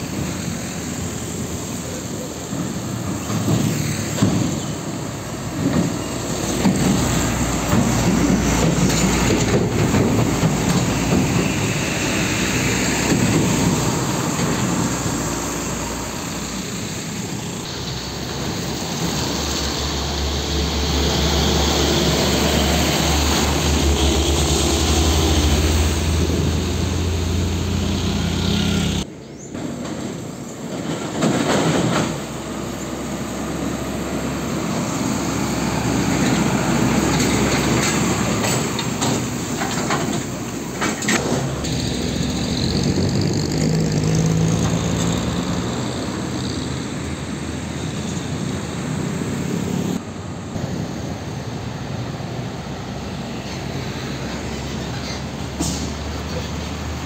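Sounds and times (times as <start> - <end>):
diesel trucks driving past: 0.0 - 57.0.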